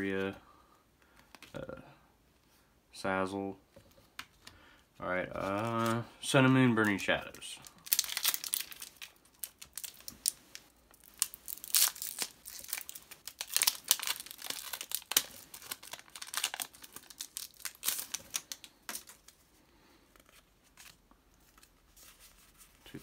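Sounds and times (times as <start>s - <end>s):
foil wrapper tearing and crinkling: 7.6s - 19.4s.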